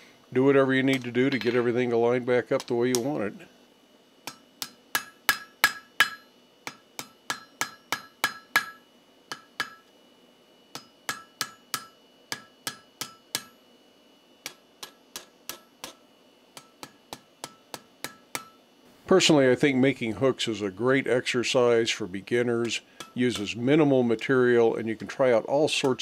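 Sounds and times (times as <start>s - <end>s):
hammer clanging on anvil: 4.3s - 9.9s, 10.8s - 13.6s, 14.4s - 16.0s, 16.6s - 18.6s, 22.6s - 23.6s.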